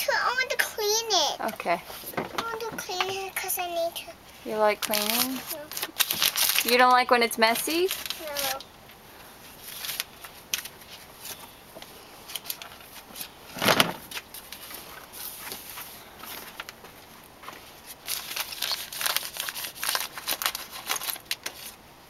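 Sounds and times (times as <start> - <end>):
taps and rustles on plastic toy: 1.5 - 3.5.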